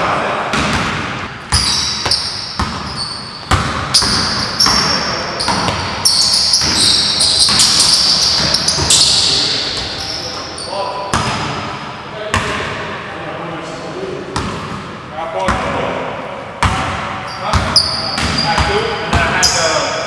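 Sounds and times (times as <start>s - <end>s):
sneakers squeaking: 0.5s - 12.9s, 16.6s - 20.0s.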